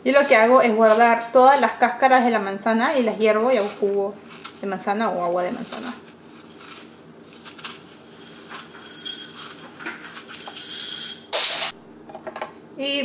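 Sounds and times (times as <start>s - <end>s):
vegetable peeler scraping apple skin: 0.0s - 8.8s.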